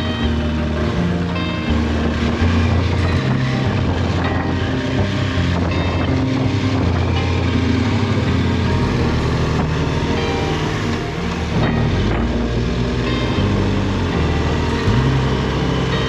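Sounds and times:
motorcycle engine running: 0.0 - 16.0
wind noise on microphone: 0.0 - 16.0.

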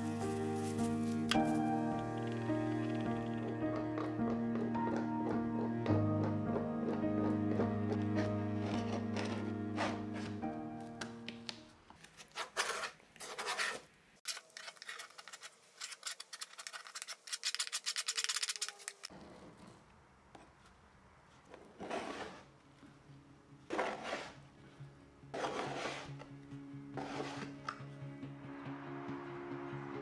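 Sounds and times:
paint scraper on wood: 21.8 - 22.5, 23.7 - 24.4, 25.3 - 26.2, 27.0 - 27.6.

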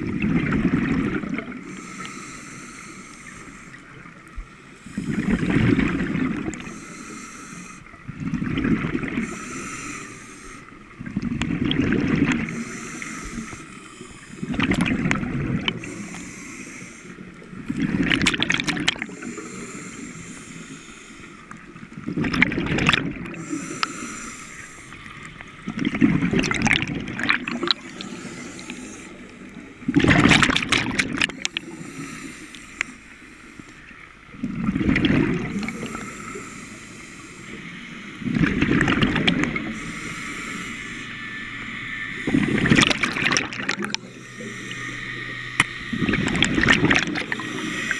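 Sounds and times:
exhaled bubbles underwater: 0.0 - 1.9, 3.9 - 6.9, 7.9 - 16.6, 17.3 - 20.0, 21.5 - 24.4, 25.0 - 32.2, 34.3 - 36.5, 37.6 - 40.4, 42.1 - 47.9
regulator inhalation hiss: 1.7 - 3.9, 6.6 - 8.0, 9.2 - 10.8, 12.5 - 14.5, 15.8 - 17.6, 19.0 - 21.6, 23.3 - 25.5, 27.6 - 29.5, 31.4 - 33.9, 35.5 - 38.2, 39.7 - 42.8, 44.0 - 46.1, 47.2 - 47.9.

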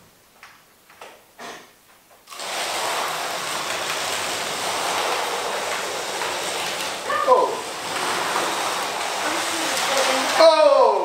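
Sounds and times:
slot cars whirring: 2.3 - 10.5.

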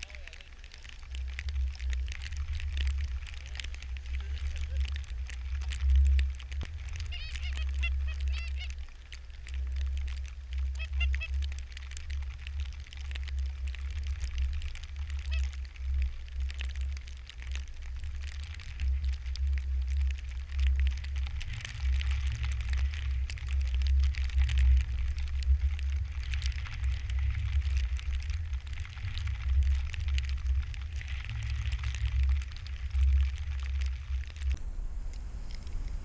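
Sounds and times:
faint crackling hiss: 0.0 - 36.0
wind buffeting microphone: 17.6 - 36.0.

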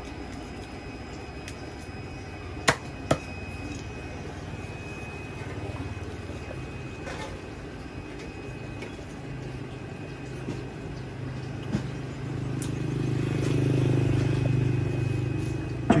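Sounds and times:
passing vehicle engine hum: 11.8 - 16.0.

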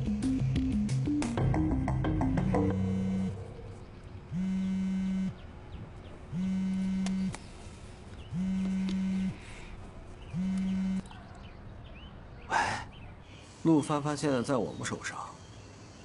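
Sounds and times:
background music: 0.0 - 4.2
phone vibrating buzz: 2.4 - 5.4, 6.3 - 7.3, 8.3 - 9.4, 10.3 - 11.0.

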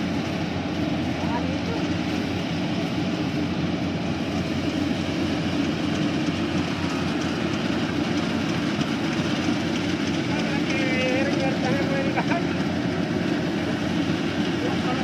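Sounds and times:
combine harvester droning: 0.0 - 15.0.

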